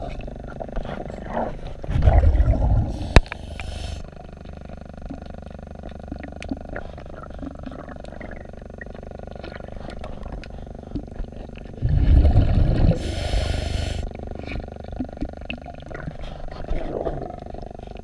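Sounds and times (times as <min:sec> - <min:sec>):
exhaled bubbles underwater: 0:00.0 - 0:18.0
low steady rumble: 0:00.0 - 0:18.0
regulator inhalation hiss: 0:02.8 - 0:04.2, 0:12.9 - 0:14.1.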